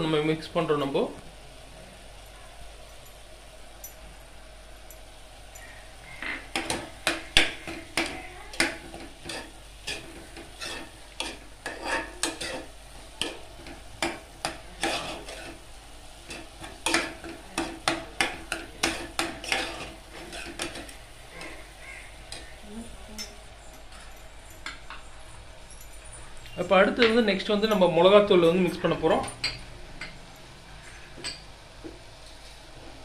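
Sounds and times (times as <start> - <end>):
spoon scraping and clinking pot: 8.0 - 13.4, 14.0 - 15.6, 16.3 - 21.6.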